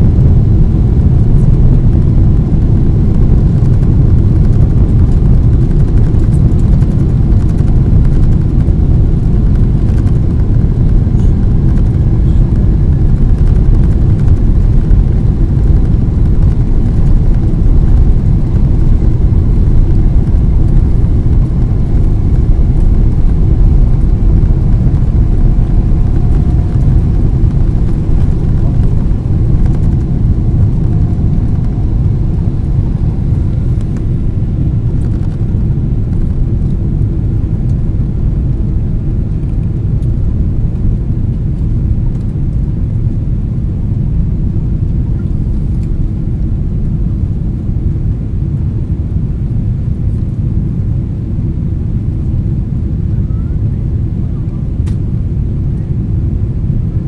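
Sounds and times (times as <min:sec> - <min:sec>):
rushing air: 0:00.0 - 0:41.7
jet engines rumbling: 0:00.0 - 0:57.0.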